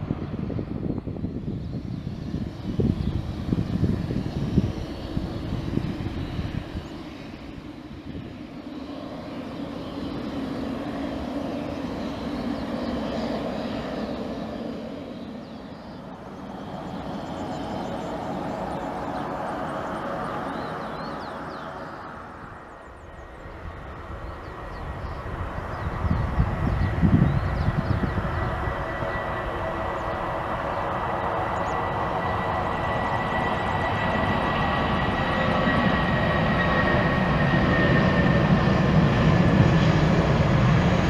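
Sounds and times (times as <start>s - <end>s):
turboprop engine drone: 0.0s - 41.0s.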